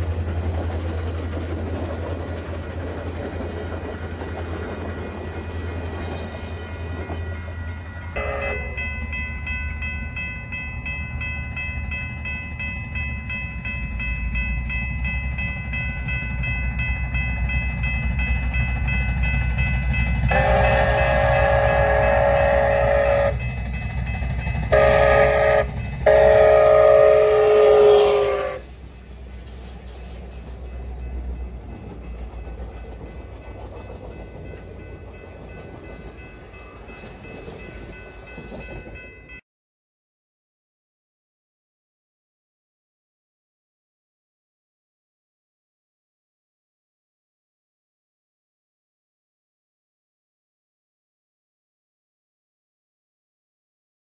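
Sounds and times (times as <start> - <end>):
train rumbling past: 0.0 - 39.4
steam train whistle: 8.2 - 8.8, 20.3 - 23.4, 24.7 - 28.8.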